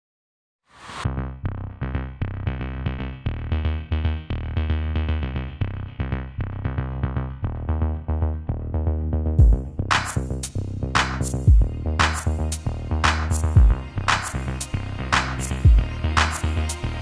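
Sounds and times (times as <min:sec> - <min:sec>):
electronic music with drum-machine beat: 0:09.4 - 0:17.0.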